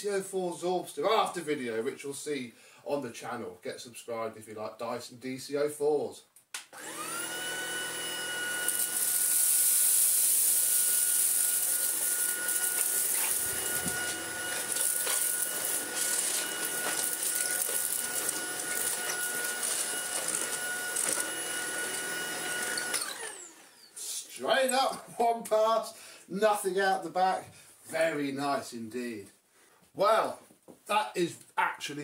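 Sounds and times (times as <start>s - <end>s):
stick vacuum whining: 6.8s - 24.9s.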